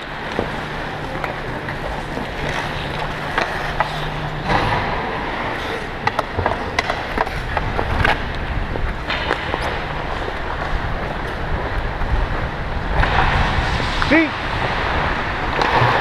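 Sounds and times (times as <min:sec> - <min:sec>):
hockey sticks and puck clacking: 0:00.0 - 0:11.9
low steady hum: 0:00.0 - 0:16.0
skates scraping on ice: 0:00.0 - 0:16.0.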